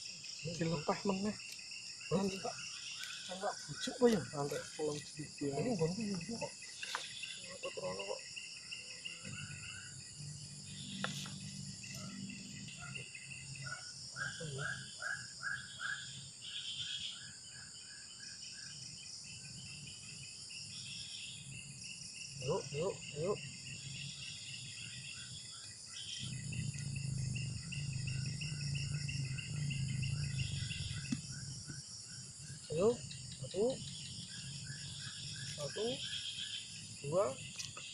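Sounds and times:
high-pitched insect chorus: 0:00.0 - 0:37.9.

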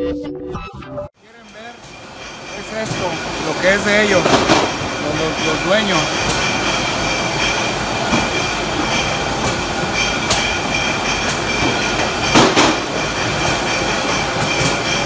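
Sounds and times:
conveyor machinery whining and rattling: 0:01.2 - 0:15.0.

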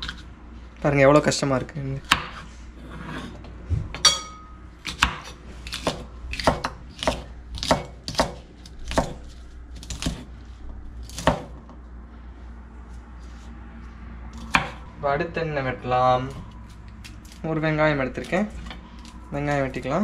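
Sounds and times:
knife chopping on wooden board: 0:02.0 - 0:02.4, 0:04.8 - 0:10.3, 0:11.0 - 0:11.6, 0:14.4 - 0:14.8
metallic clink: 0:04.0 - 0:04.6.

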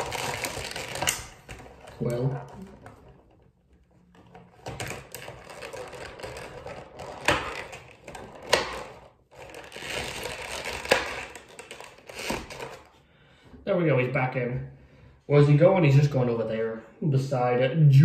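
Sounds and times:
plastic packaging crinkling: 0:00.0 - 0:02.0, 0:04.8 - 0:13.0.

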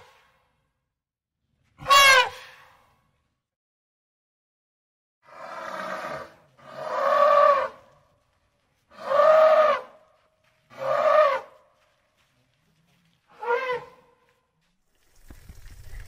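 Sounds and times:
elephant trumpeting: 0:01.8 - 0:02.5.

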